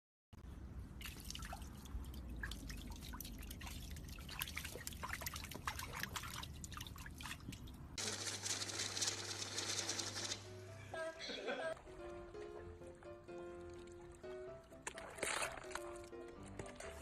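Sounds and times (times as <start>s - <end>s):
dog paddling water splashes: 1.0s - 8.0s, 13.3s - 17.0s.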